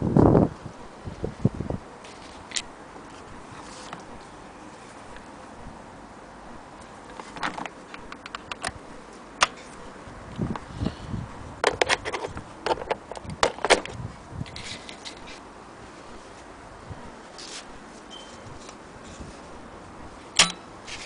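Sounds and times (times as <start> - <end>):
electric cord and plug handling: 7.1 - 8.8, 11.6 - 15.4.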